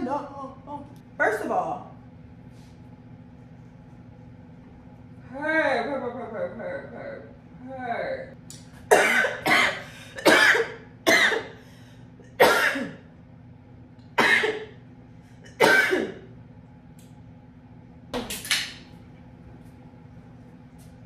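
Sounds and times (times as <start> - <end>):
woman coughing: 8.9 - 11.6, 12.4 - 13.0, 14.2 - 14.8, 15.5 - 16.2.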